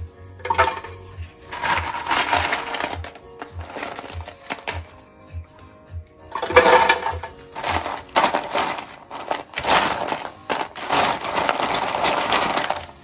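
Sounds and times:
background music with soft beat: 0:00.0 - 0:13.0
dry peel crackling and rustling: 0:01.5 - 0:04.9, 0:07.5 - 0:13.0.

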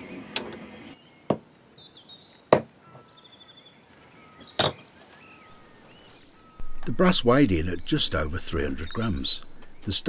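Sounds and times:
metallic clinks ringing: 0:02.5 - 0:03.9, 0:04.6 - 0:05.8.

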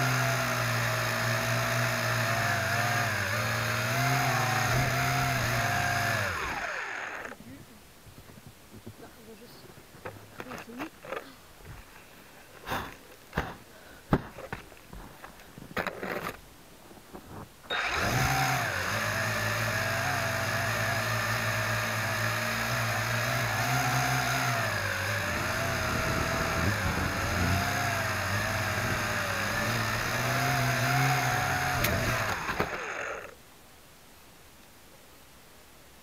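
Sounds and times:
quadcopter motors whining: 0:00.0 - 0:07.4, 0:17.7 - 0:33.4.

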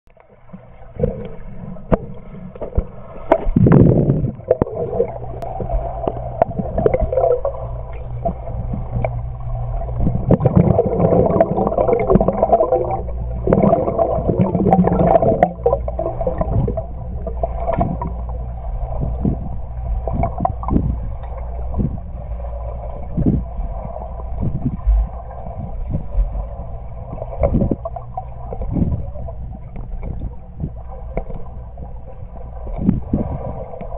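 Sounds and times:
underwater clicks and knocks: 0:00.1 - 0:18.4, 0:27.4 - 0:32.0
underwater rumble of moving water: 0:00.1 - 0:33.9
water gurgling: 0:00.1 - 0:33.9.

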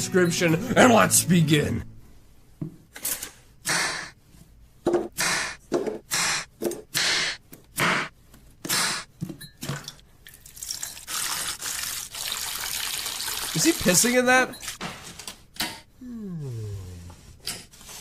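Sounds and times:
liquid pouring into pot: 0:10.3 - 0:13.9.

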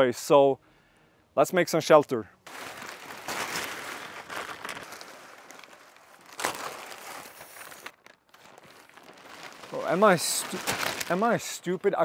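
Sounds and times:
plastic tarp crinkling: 0:02.5 - 0:12.0.

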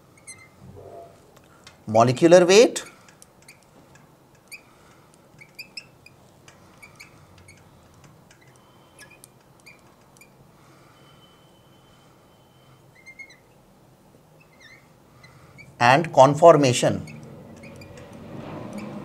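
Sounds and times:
marker squeaking on glass: 0:00.1 - 0:01.3, 0:02.8 - 0:03.7, 0:04.4 - 0:04.8, 0:05.4 - 0:10.4, 0:11.1 - 0:13.6, 0:14.3 - 0:15.8, 0:16.9 - 0:19.0.

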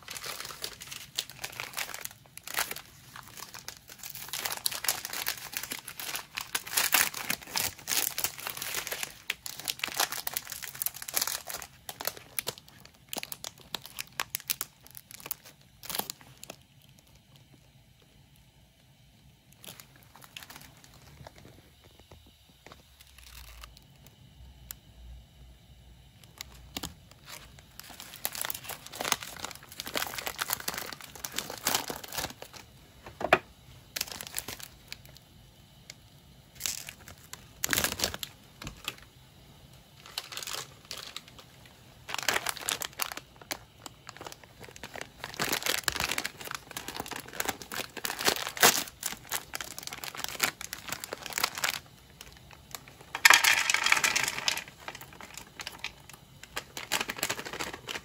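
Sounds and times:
snack packaging crinkling: 0:00.0 - 0:18.4, 0:19.4 - 0:24.8, 0:26.2 - 0:39.1, 0:39.8 - 0:58.0.

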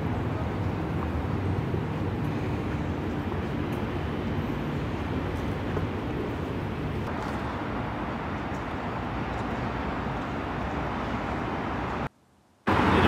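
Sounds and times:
distant road traffic: 0:00.0 - 0:13.0.

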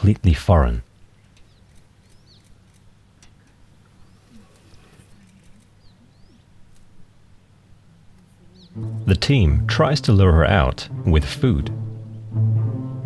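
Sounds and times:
birds chirping: 0:00.0 - 0:12.4
steady low hum: 0:00.0 - 0:13.0
soft low bird calls: 0:00.8 - 0:09.2
small clicks: 0:01.2 - 0:07.0.

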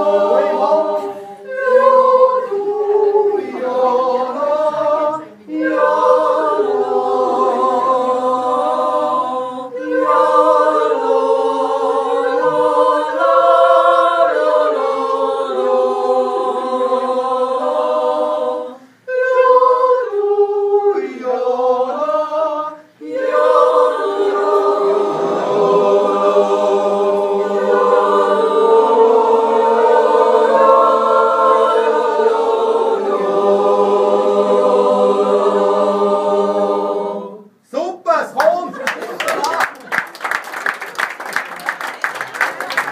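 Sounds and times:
choir yodeling a cappella: 0:00.0 - 0:37.6.

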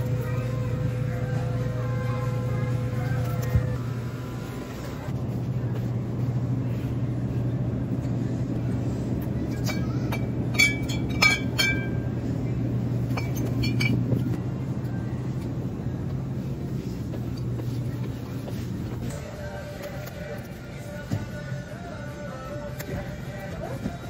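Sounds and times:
steady low hum: 0:00.0 - 0:24.0
glass bottles clinking: 0:09.6 - 0:12.1, 0:13.1 - 0:14.4.

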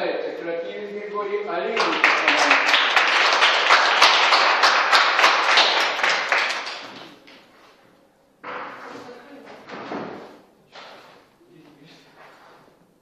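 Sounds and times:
small group applauding: 0:01.6 - 0:07.5.

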